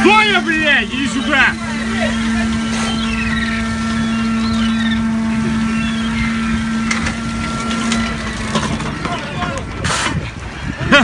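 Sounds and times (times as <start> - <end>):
deck machinery humming: 0.0 - 11.0
low rumble: 0.0 - 11.0.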